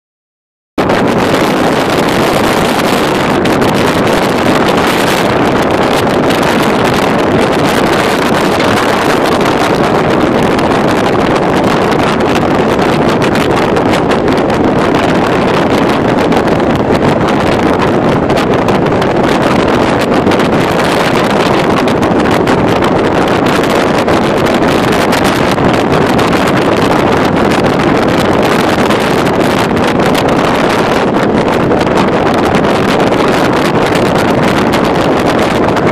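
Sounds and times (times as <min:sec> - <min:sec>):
wind and road noise: 0:00.8 - 0:35.9.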